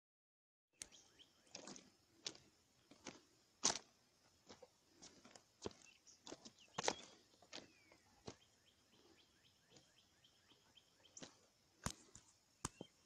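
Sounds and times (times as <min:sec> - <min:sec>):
bird chirping: 0:00.8 - 0:03.0, 0:05.6 - 0:13.0
footsteps on gravel: 0:01.4 - 0:09.1.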